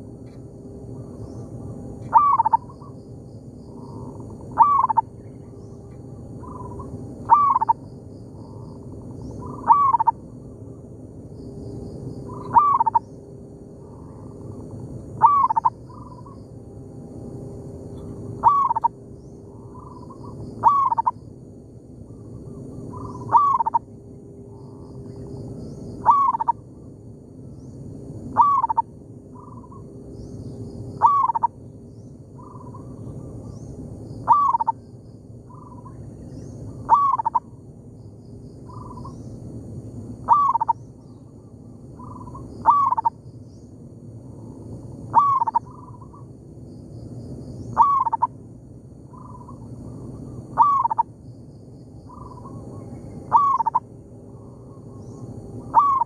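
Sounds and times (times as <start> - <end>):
doves cooing: 2.1 - 3.0, 3.7 - 5.4, 6.4 - 7.8, 8.4 - 10.2, 12.2 - 13.1, 13.8 - 16.4, 18.4 - 21.2, 22.4 - 23.9, 25.9 - 26.6, 28.3 - 28.8, 31.0 - 31.5, 34.2 - 34.8, 35.5 - 37.5, 40.2 - 40.8, 42.0 - 43.1, 45.0 - 46.2, 47.8 - 48.4, 49.1 - 51.1, 52.1 - 53.9, 55.6 - 56.0.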